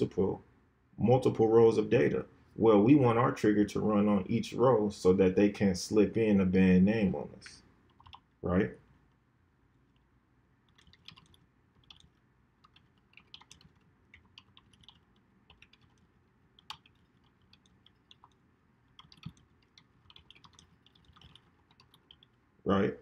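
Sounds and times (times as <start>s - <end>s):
faint typing on computer keyboard: 7.4s - 22.5s.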